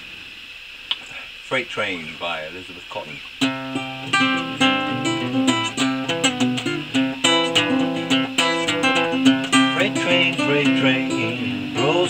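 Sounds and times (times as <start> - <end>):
solo classical guitar fingerpicking: 3.4 - 12.0.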